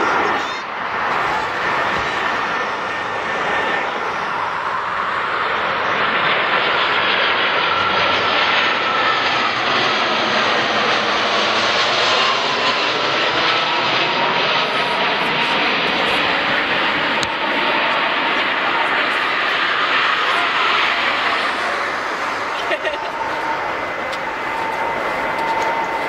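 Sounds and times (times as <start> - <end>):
jet airliner engines: 0.0 - 26.0
faint high whine: 14.1 - 26.0.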